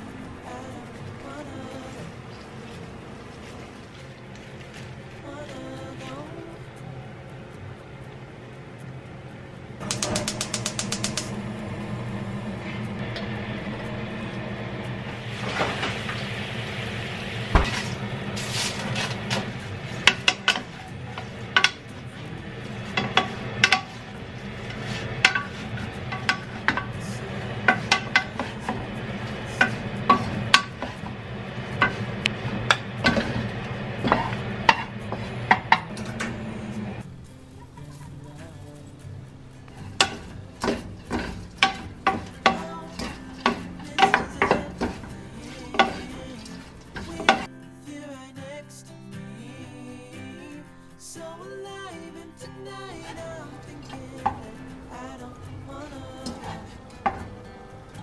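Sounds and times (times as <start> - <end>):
soft sizzle: 0.0 - 58.0
spatula scraping a frying pan: 17.5 - 36.4, 39.7 - 47.5.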